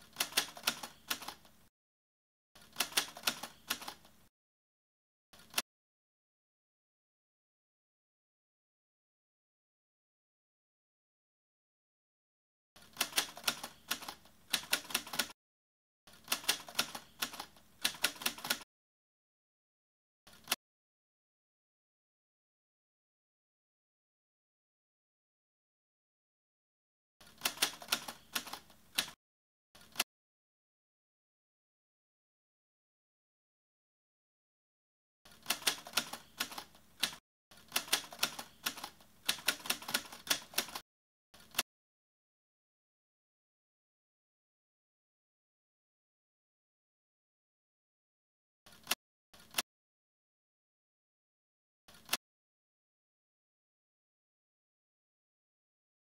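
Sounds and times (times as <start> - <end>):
typewriter keys clicking: 35.3 - 40.8.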